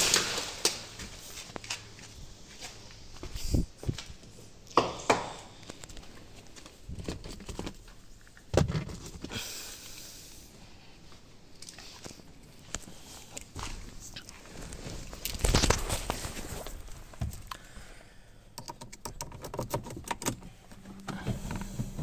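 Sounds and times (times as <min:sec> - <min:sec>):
rustling: 0:10.9 - 0:17.8.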